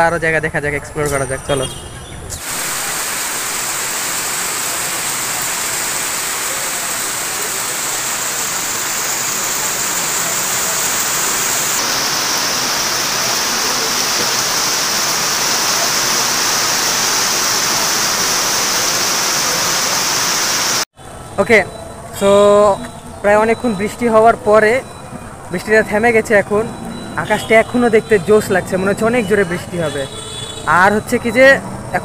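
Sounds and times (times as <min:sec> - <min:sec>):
steady rain falling: 0:02.4 - 0:20.9.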